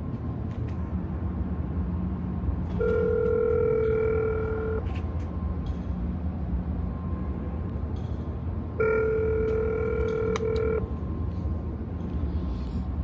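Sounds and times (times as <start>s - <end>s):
intercom ringback tone: 2.8s - 4.9s, 8.8s - 10.9s.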